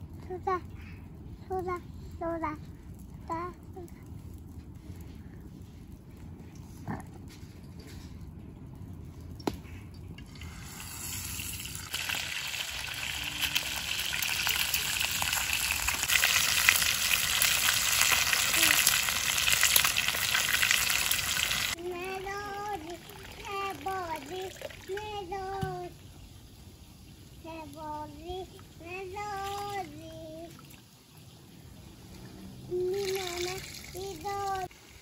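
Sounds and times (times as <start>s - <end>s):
fish sizzling in oil: 10.5s - 21.8s.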